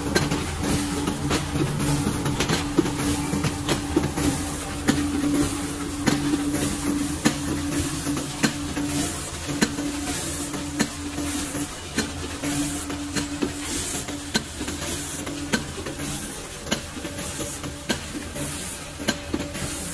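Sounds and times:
steady machine hum: 0.0s - 19.9s.

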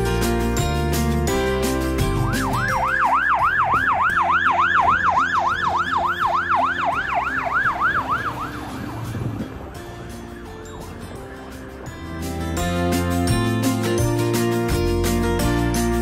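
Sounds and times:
fire engine siren yelp: 2.1s - 11.2s.

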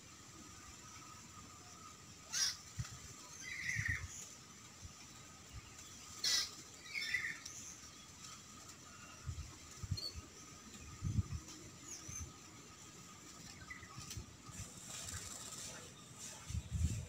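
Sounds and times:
bird harsh calls: 2.3s - 2.8s, 6.1s - 7.4s.

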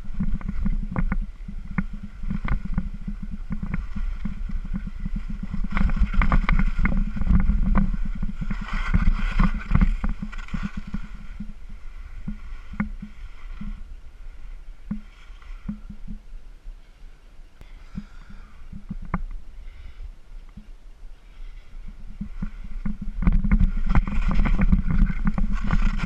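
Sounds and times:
skis knocking on snow: 0.0s - 11.6s, 22.1s - 26.0s
skis chattering over snow: 0.0s - 15.9s, 22.1s - 26.0s
wind rumbling on microphone: 0.0s - 26.0s.

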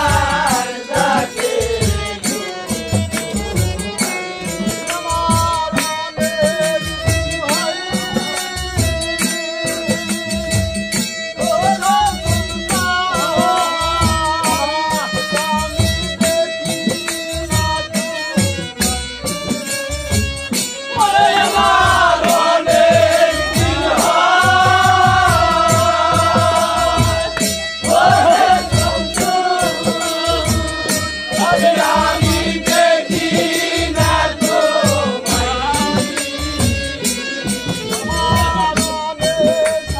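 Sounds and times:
hand-drum beat: 0.0s - 39.9s
harmonium melody: 0.0s - 39.9s
rattling percussion: 0.0s - 39.9s
person singing: 20.9s - 39.9s.

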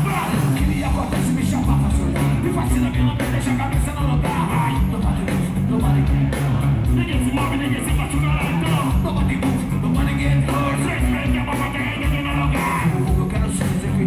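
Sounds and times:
rap-rock band playing: 0.0s - 14.0s
vocals shouted into microphones: 0.0s - 14.0s.

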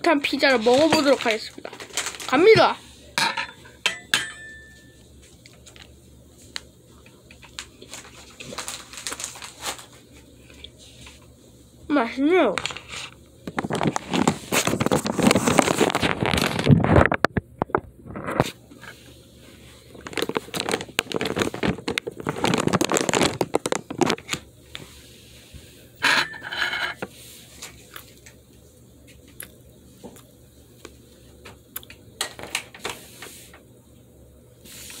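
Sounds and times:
person eating: 27.8s - 28.3s.

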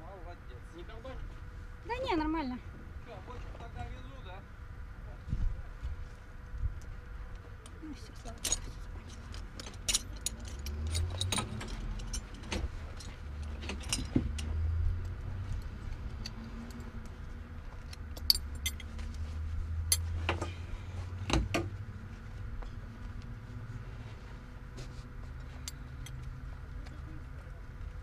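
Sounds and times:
metal harness buckles clinking: 8.2s - 14.6s, 17.7s - 19.1s, 19.9s - 20.1s.

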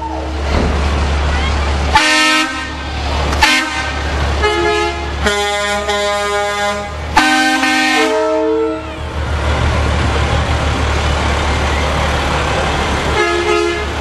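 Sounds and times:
vehicle horns honking: 1.9s - 9.1s, 13.1s - 14.0s.

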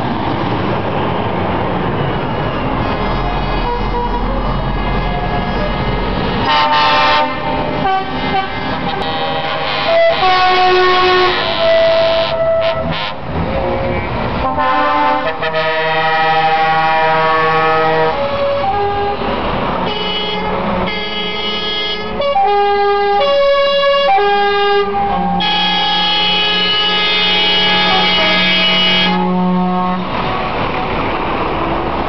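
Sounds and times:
truck air horns: 3.4s - 30.7s.

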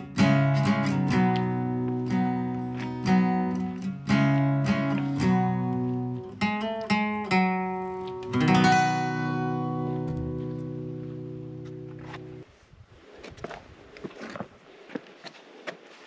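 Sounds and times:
acoustic guitar picked notes: 0.0s - 12.4s
strummed guitar chord: 0.0s - 12.4s.

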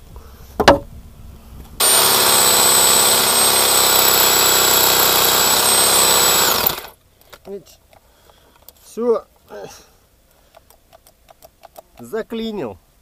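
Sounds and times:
sharp knock: 0.6s - 0.9s
electric jigsaw sawing wood: 1.8s - 7.0s.

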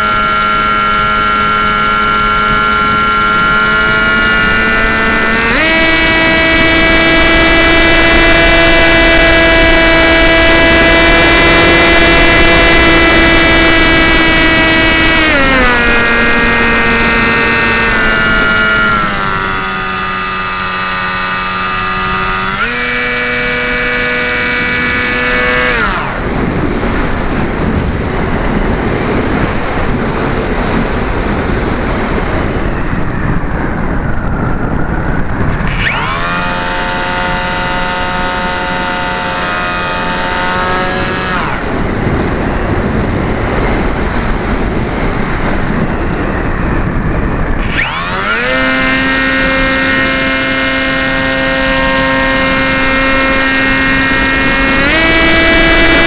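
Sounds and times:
model airplane motor whining: 0.0s - 56.0s
wind rushing over camera: 0.0s - 56.0s.

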